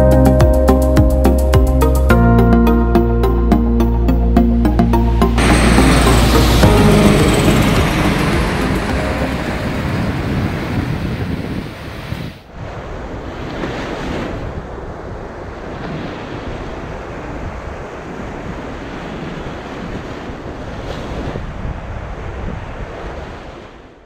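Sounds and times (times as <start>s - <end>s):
wind buffeting microphone: 5.4s - 23.6s
ocean surf washing onto beach: 5.4s - 23.9s.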